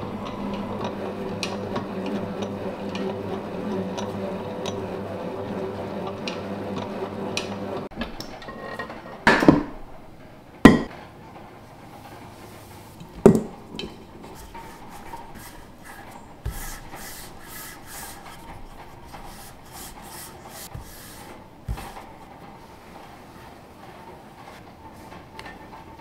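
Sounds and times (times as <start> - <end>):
stand mixer motor running: 0.0 - 7.9
metal bowl knocking on table: 10.7 - 10.9.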